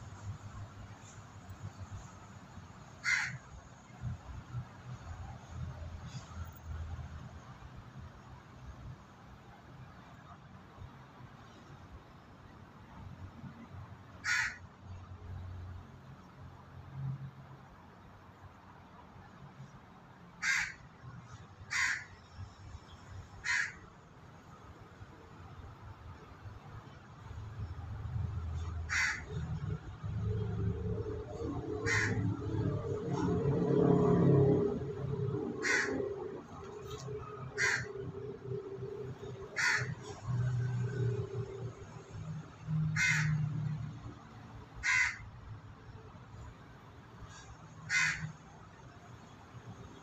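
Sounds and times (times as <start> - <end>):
crow cawing: 3.0 - 3.4, 14.2 - 14.6, 20.4 - 20.8, 21.7 - 22.1, 23.4 - 23.8, 28.9 - 29.3, 31.8 - 32.2, 35.6 - 36.1, 37.6 - 38.0, 39.6 - 40.0, 43.0 - 43.4, 44.8 - 45.2, 47.9 - 48.3.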